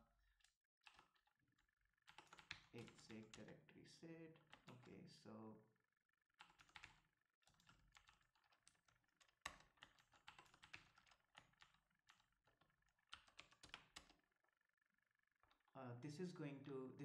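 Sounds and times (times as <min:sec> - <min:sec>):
keyboard key clicks: 0:04.4 - 0:04.9.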